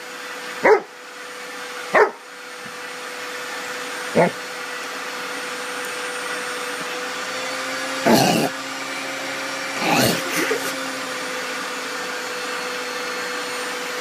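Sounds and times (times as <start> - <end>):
vacuum cleaner running: 0.0 - 14.0
sucking slurp at nozzle: 8.1 - 8.5.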